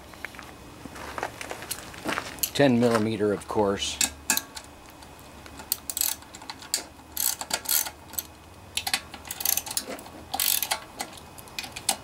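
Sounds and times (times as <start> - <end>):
socket ratchet clicking: 5.6 - 12.0.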